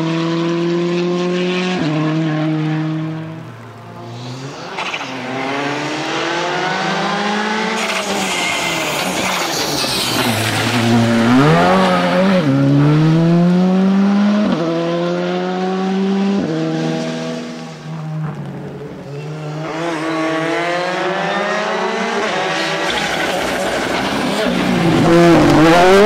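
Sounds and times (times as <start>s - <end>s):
rally car engine accelerating: 0.0s - 3.4s, 4.0s - 26.0s
second rally car approaching: 0.1s - 26.0s.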